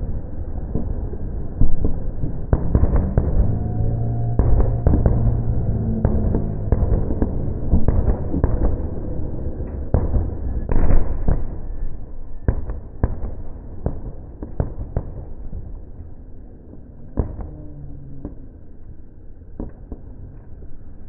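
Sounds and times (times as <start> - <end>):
fireworks bursting bangs: 0.6 - 15.9.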